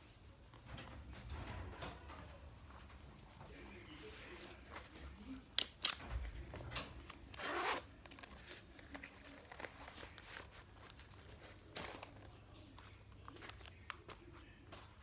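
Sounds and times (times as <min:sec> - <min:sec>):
zipper pulled open: 0:07.3 - 0:08.4
nylon fabric rustling: 0:07.3 - 0:13.7.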